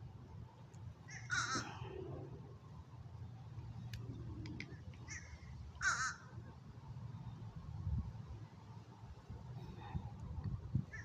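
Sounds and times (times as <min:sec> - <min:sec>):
harsh bird calls: 0:01.1 - 0:01.9
faint clicks: 0:03.8 - 0:05.1.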